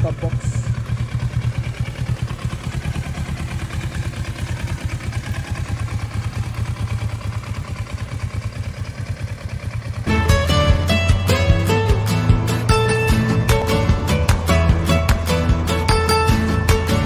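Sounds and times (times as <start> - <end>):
motorcycle engine idling: 0.0 - 17.0.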